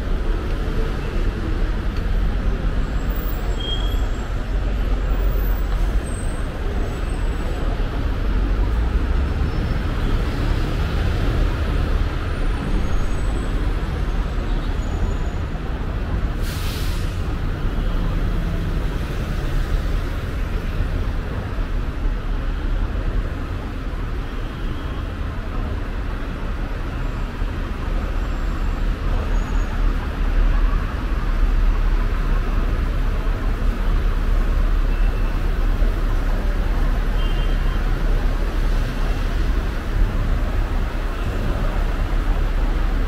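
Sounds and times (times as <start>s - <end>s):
road traffic rumble: 0.0s - 43.0s.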